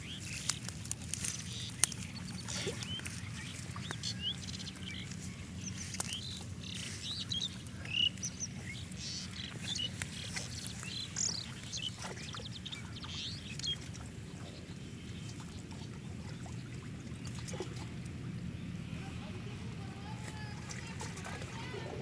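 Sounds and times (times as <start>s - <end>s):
water sloshing and splashing: 0.0s - 19.0s, 19.6s - 22.0s
birds chirping: 0.0s - 22.0s.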